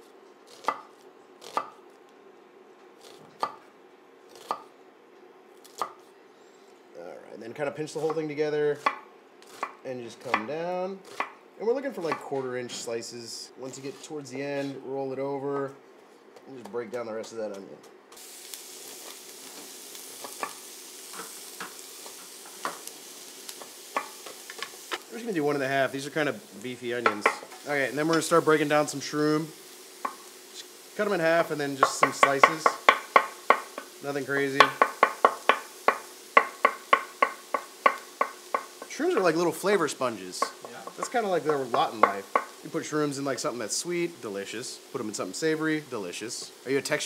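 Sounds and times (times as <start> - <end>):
onion sizzling in oil: 8.8 - 10.4, 18.1 - 47.0
knife chopping on wooden board: 11.1 - 11.4, 31.8 - 33.8, 34.6 - 38.8.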